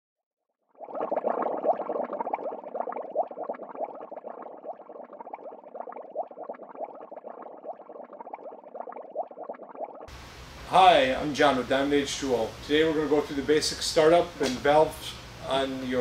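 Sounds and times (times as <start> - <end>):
bubbles blubbing: 0.7 - 10.1.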